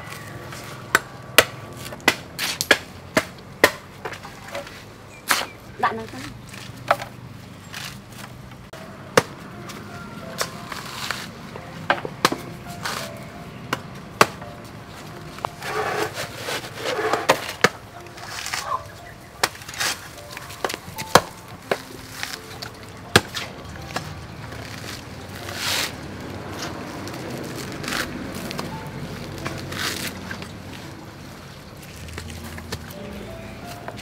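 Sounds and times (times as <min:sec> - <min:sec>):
hand tool knocking coconut husk: 0:00.9 - 0:04.7, 0:05.3 - 0:07.1, 0:11.9 - 0:13.1
trowel scraping soil: 0:10.4 - 0:11.4, 0:15.4 - 0:19.0, 0:19.6 - 0:20.6, 0:23.4 - 0:28.7.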